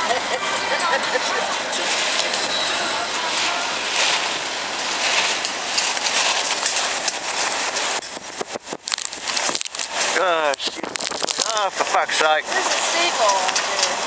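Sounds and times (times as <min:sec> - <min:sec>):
waves breaking on pier: 0:00.0 - 0:14.0
wind rushing across microphone: 0:04.4 - 0:14.0.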